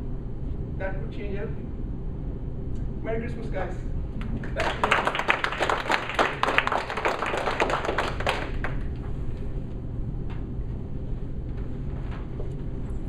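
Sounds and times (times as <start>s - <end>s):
small audience applauding: 4.2s - 9.0s.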